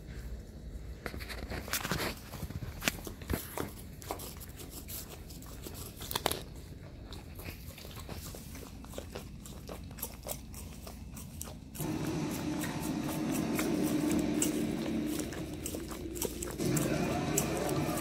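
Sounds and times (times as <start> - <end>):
dog licking and lapping: 2.2 - 18.0.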